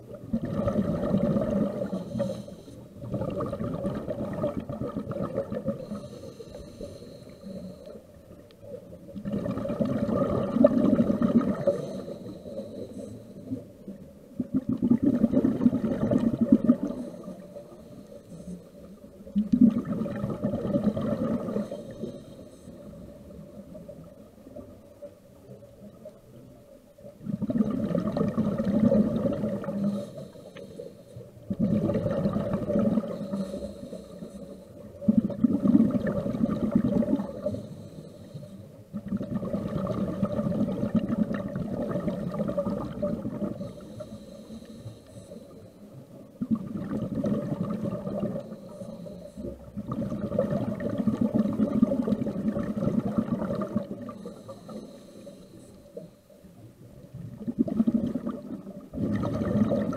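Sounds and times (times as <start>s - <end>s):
bubbling exhalations: 0.2s - 2.4s, 3.0s - 6.1s, 9.2s - 12.3s, 14.4s - 17.4s, 19.4s - 21.8s, 27.2s - 30.1s, 31.5s - 34.0s, 35.0s - 37.6s, 38.9s - 44.2s, 46.4s - 48.8s, 49.6s - 54.6s, 57.2s - 59.9s
diver breathing through regulator: 0.5s - 3.5s, 5.1s - 8.2s, 9.4s - 13.7s, 15.4s - 19.2s, 20.2s - 23.6s, 28.0s - 38.8s, 42.6s - 46.1s, 47.7s - 51.7s, 53.4s - 56.4s.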